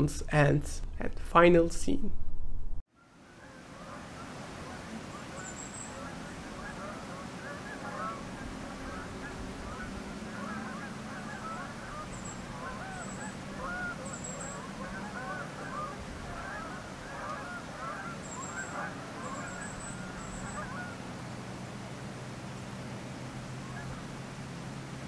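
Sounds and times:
flock of birds calling: 0:03.0 - 0:21.4, 0:23.3 - 0:24.2.

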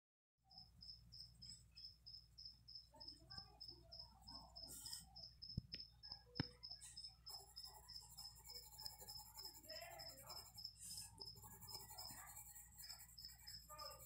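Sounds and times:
insect chirping: 0:00.5 - 0:14.0.

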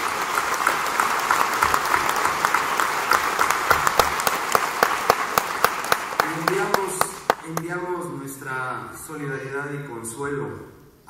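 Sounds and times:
audience applause: 0:00.0 - 0:07.7.

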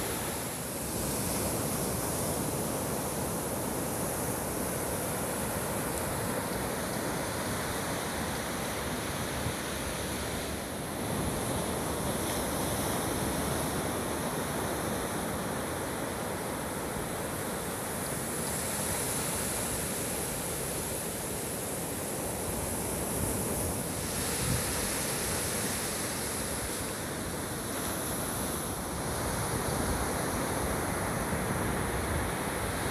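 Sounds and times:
surf washing: 0:00.0 - 0:32.9
wind on microphone: 0:22.4 - 0:27.0.

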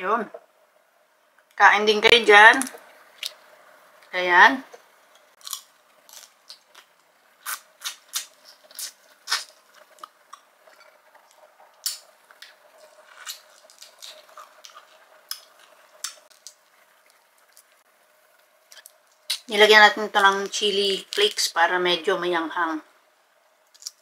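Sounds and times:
shrimp shells cracking: 0:05.4 - 0:10.5, 0:11.8 - 0:16.6, 0:23.7 - 0:24.0
eating shrimp with mouth smacks: 0:05.4 - 0:16.6.

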